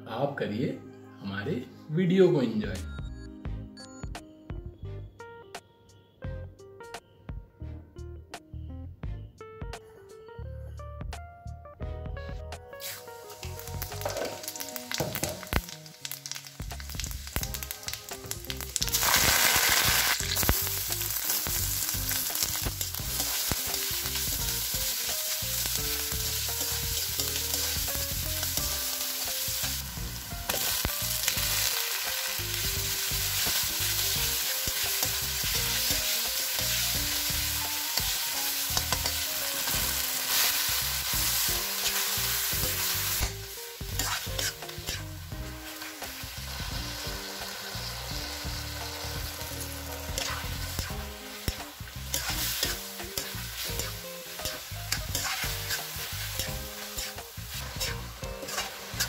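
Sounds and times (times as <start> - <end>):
food sizzling in hot oil: 12.8 - 59.0
spatula stirring: 43.9 - 45.0, 49.4 - 59.0.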